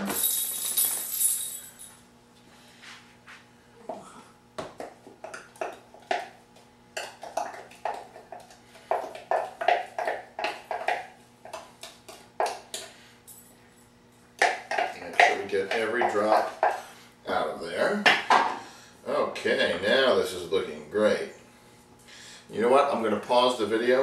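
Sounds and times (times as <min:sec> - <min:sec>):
spatula scraping and tapping bowl: 0:04.8 - 0:13.0, 0:14.4 - 0:16.8.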